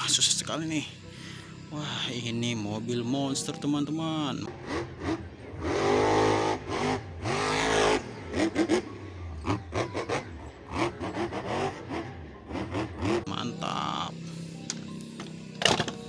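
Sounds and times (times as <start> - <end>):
truck engine revving: 4.5 - 13.6.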